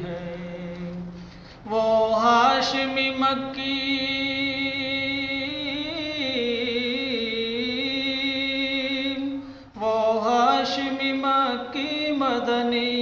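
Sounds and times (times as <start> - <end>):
person singing: 0.0 - 13.0.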